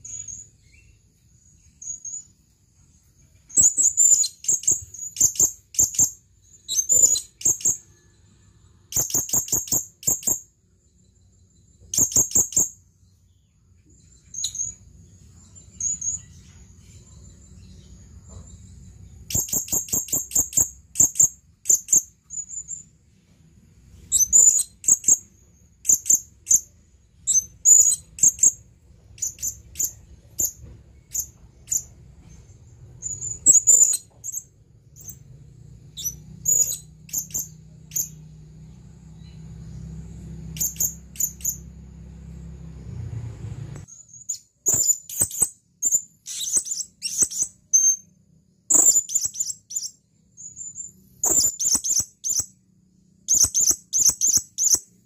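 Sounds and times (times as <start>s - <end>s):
parrot chirping: 3.4s - 8.2s, 8.9s - 10.5s, 11.8s - 12.8s, 14.0s - 14.8s, 15.6s - 22.9s, 23.9s - 38.3s, 39.2s - 41.7s, 44.1s - 48.1s, 48.7s - 52.6s, 53.2s - 55.0s.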